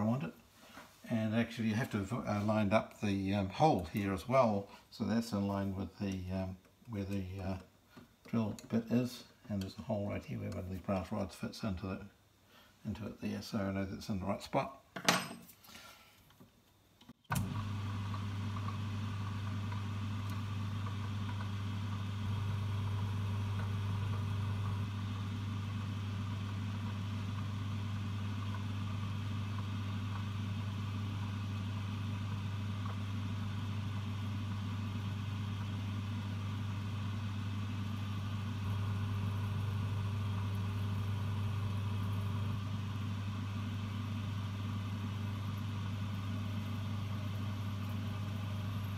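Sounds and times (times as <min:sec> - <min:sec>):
lathe motor humming: 0:17.3 - 0:48.9
lathe switching on: 0:17.3 - 0:48.9.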